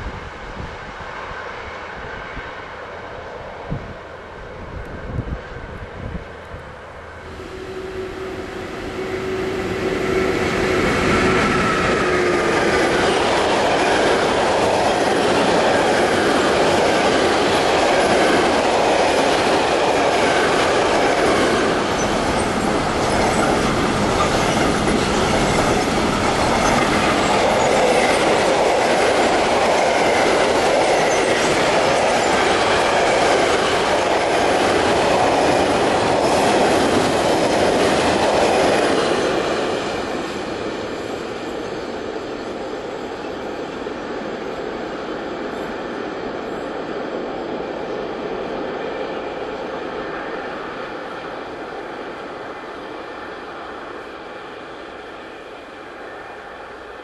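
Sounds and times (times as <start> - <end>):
electric locomotive passing: 0.0 - 57.0
train wheels rumbling and rattling: 8.4 - 53.0.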